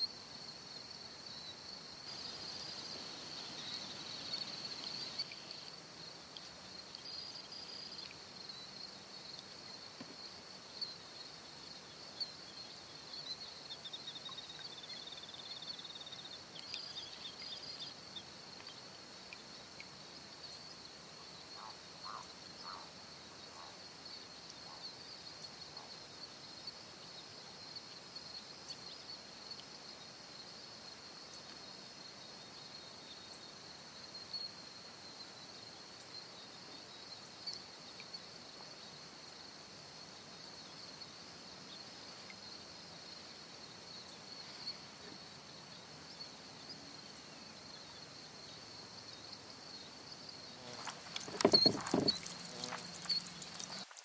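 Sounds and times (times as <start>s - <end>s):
insects chorus: 0.0s - 54.0s.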